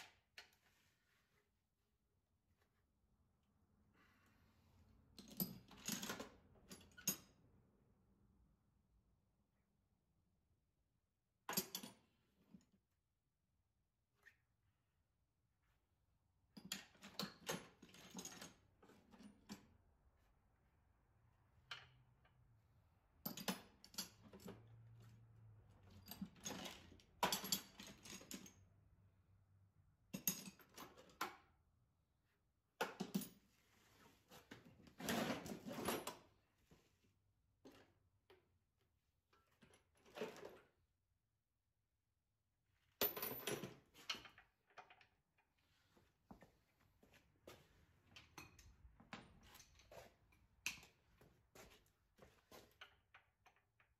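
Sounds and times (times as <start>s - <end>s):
metal tools rattling in a toolbox: 25.8s - 28.6s.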